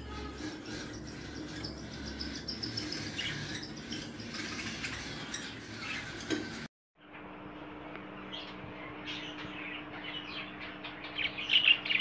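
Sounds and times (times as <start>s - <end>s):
small birds chirping: 0.0s - 6.7s, 8.2s - 12.0s.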